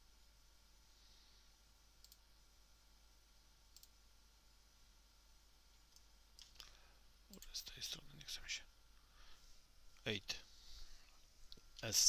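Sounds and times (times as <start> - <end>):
computer mouse clicks: 2.0 - 2.2, 3.7 - 4.0, 5.9 - 7.5.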